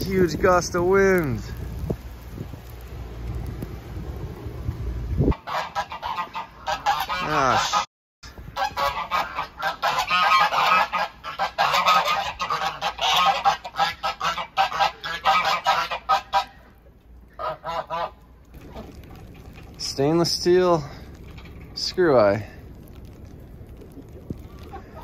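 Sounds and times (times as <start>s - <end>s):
wind gusting on microphone: 0.0s - 6.2s
geese honking: 5.3s - 7.9s, 8.6s - 16.7s, 17.3s - 18.9s.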